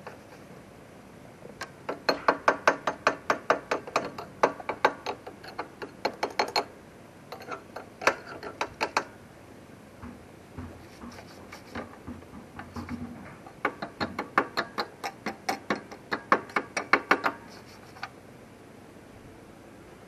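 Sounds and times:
hand tool clicking on metal: 1.6s - 6.7s, 7.3s - 9.1s, 13.5s - 18.1s.

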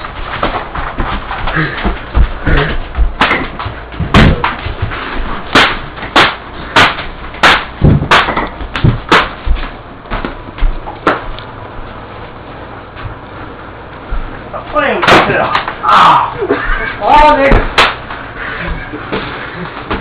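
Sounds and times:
hard smacks and thuds: 0.2s - 11.3s.

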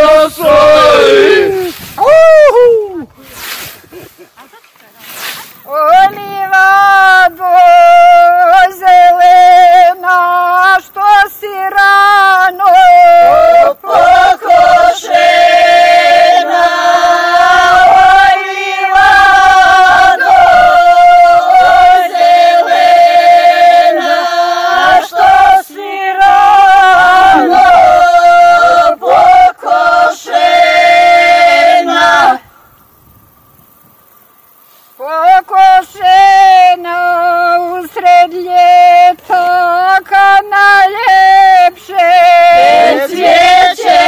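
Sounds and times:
women singing unaccompanied: 0.0s - 1.7s, 5.6s - 32.5s, 35.0s - 44.0s.

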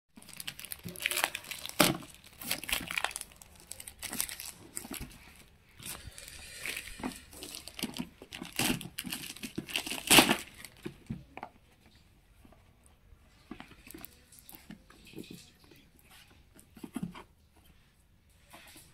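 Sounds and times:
plastic bag crinkling and tearing: 0.2s - 10.9s.

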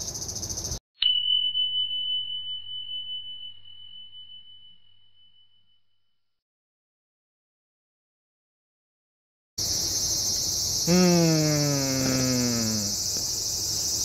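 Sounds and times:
crickets chirping: 0.0s - 0.8s, 9.6s - 14.0s
high bell-like chime: 1.0s - 6.2s.

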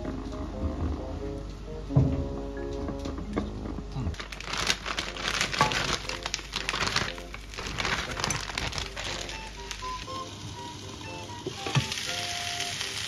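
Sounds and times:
plastic bag crinkling: 4.1s - 10.8s, 11.6s - 13.0s.

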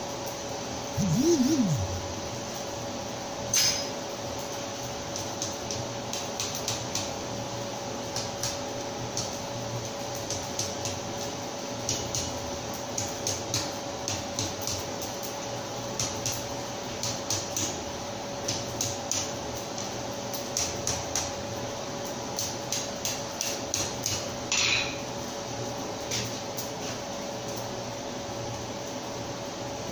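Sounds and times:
steady hum: 1.0s - 2.3s.

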